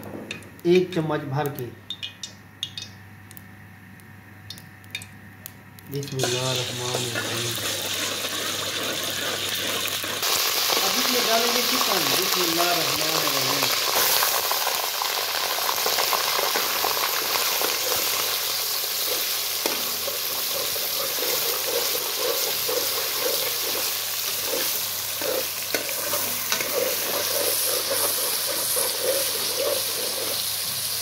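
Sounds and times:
chicken sizzling in hot oil: 0:06.0 - 0:31.0
metal spoon scraping pan: 0:19.0 - 0:30.5.

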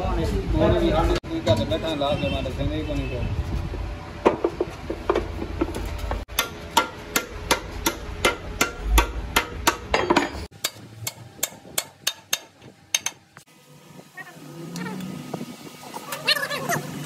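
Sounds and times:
hammer tapping on metal: 0:06.3 - 0:13.2.

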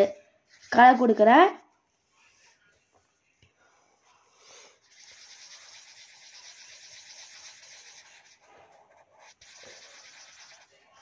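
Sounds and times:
felt-tip pen scribbling on paper: 0:04.8 - 0:11.0.

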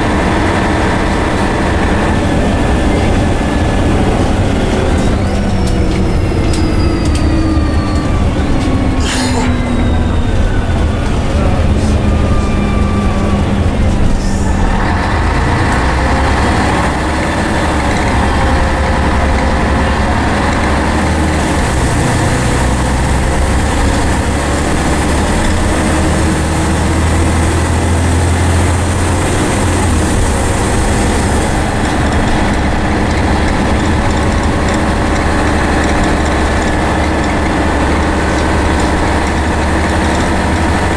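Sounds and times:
bus engine rumble: 0:00.0 - 0:40.9
drivetrain whine: 0:00.0 - 0:40.9.

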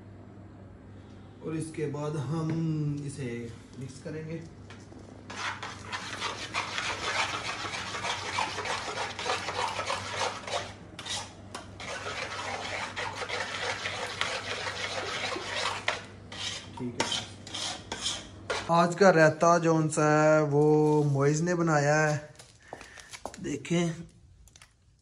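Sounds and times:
spoon scraping steel pot: 0:05.3 - 0:18.7.

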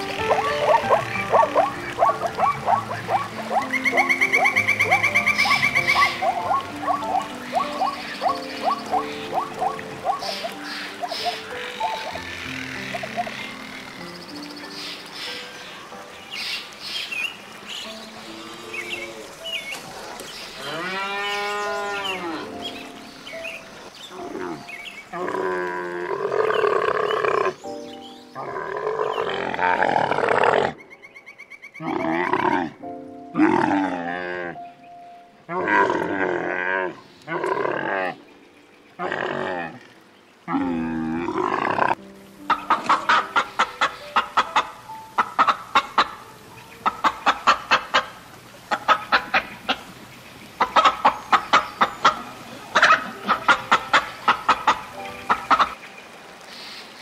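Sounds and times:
camel calling: 0:00.0 - 0:13.7
cow mooing: 0:20.6 - 0:22.5, 0:35.5 - 0:38.2
chickens clucking: 0:42.5 - 0:49.9, 0:50.6 - 0:55.8.

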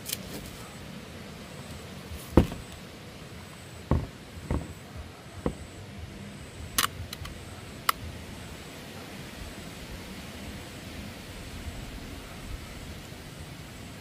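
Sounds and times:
dull knocks from handling: 0:02.4 - 0:02.7, 0:03.9 - 0:04.8
sharp click: 0:06.8 - 0:08.0.

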